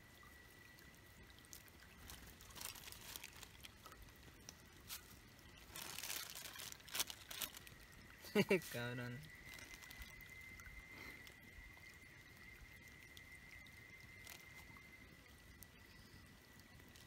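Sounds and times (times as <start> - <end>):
plastic bag crinkling: 2.0 - 4.0, 5.6 - 8.0, 9.4 - 10.3.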